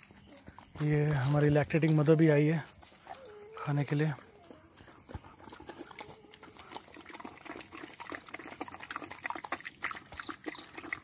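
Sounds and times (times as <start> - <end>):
dog lapping and chewing: 4.8 - 11.0.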